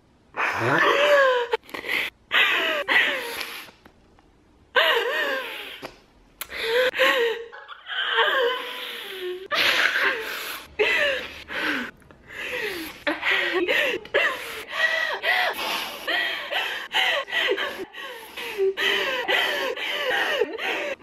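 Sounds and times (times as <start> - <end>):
woman sobbing: 0.6 - 1.6, 2.3 - 3.3, 4.8 - 5.8, 6.6 - 21.0.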